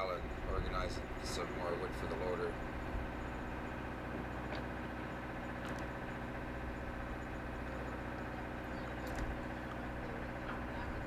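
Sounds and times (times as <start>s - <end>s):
diesel engine humming: 0.0s - 11.0s.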